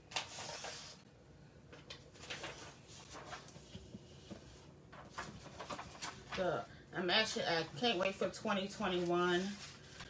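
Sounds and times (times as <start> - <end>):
paper rustling: 0.1 - 1.0, 1.7 - 6.7, 8.8 - 10.0.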